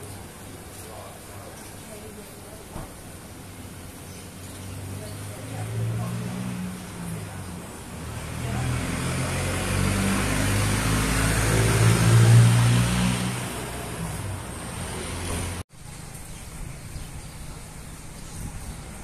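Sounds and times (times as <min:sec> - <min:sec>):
vehicle passing by: 0:03.6 - 0:15.6.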